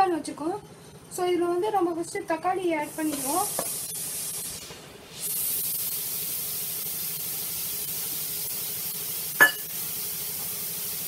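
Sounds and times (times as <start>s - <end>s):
pan hissing on stove: 2.8s - 11.0s
sharp clink: 9.4s - 9.7s.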